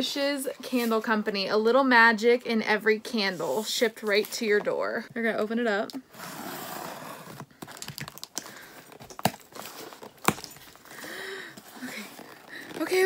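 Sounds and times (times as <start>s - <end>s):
cardboard crinkling and tearing: 6.2s - 11.0s, 11.6s - 13.0s.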